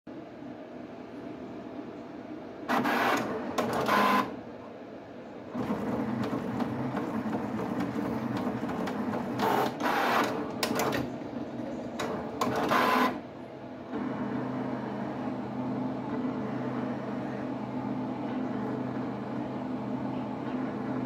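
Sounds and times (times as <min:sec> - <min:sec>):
pen plotter servo motors whirring: 0:02.7 - 0:04.3, 0:05.6 - 0:11.1, 0:12.0 - 0:13.2.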